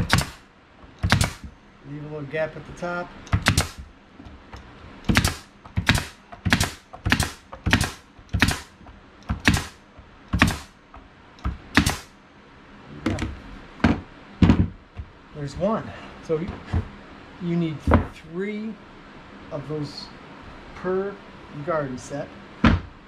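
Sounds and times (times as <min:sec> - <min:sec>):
nail gun firing: 0:00.0 - 0:00.4, 0:01.0 - 0:01.5, 0:03.3 - 0:03.9, 0:05.0 - 0:09.8, 0:10.4 - 0:10.7, 0:11.7 - 0:12.1.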